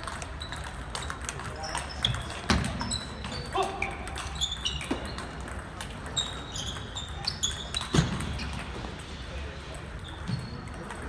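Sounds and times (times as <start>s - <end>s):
sneakers squeaking on floor: 0.2s - 9.3s, 9.9s - 11.0s
ping-pong ball clicking: 4.0s - 8.7s.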